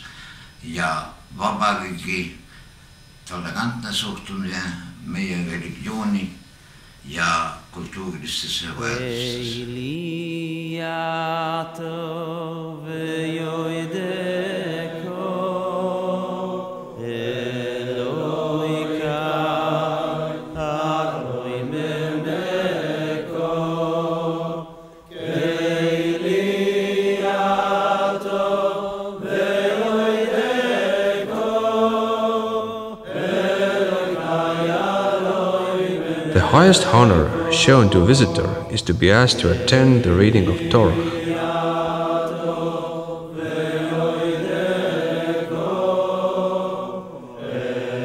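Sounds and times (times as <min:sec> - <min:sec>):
person chanting long notes: 0:36.0 - 0:41.5
steady low tone: 0:36.3 - 0:41.5.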